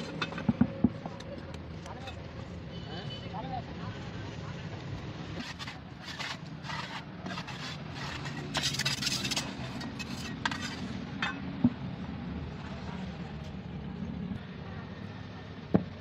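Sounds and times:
trowel scraping cement on metal: 5.4s - 11.4s.

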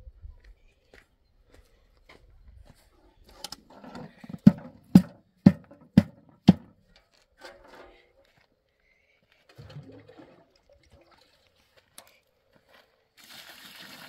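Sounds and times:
sharp knocks: 4.4s - 6.7s.

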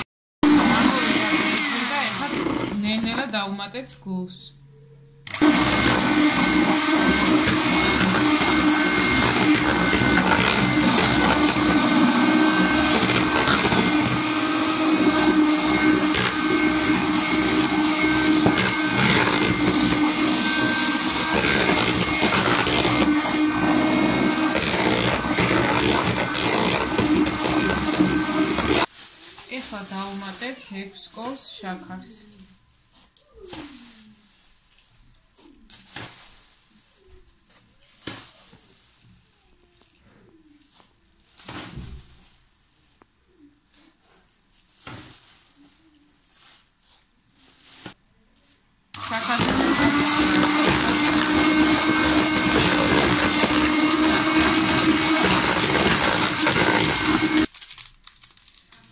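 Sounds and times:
electric hand mixer whisking: 0.4s - 3.4s, 5.3s - 28.9s, 49.0s - 57.5s.

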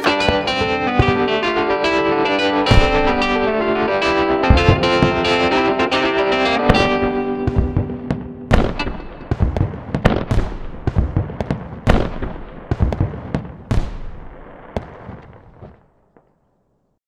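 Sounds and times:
fireworks booming: 0.0s - 15.9s
fireworks crackling: 0.0s - 16.3s.

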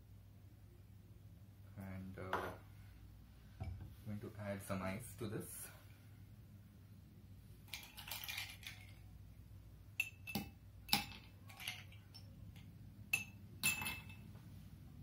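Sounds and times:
ice clinking in glass: 7.7s - 9.0s, 13.2s - 14.3s
ice shuffling in ceramic mug: 7.7s - 9.0s.

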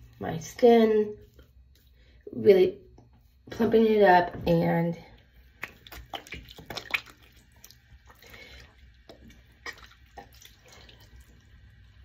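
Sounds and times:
small wet clicks: 5.2s - 11.5s
water dripping in a sink: 5.2s - 12.0s.

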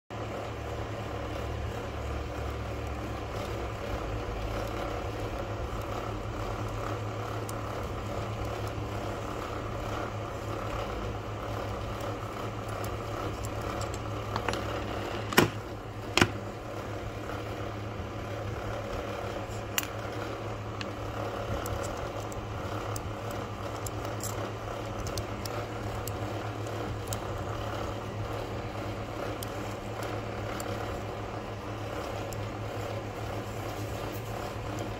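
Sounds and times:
low background hum: 0.1s - 34.9s
handling noise: 13.5s - 16.6s.

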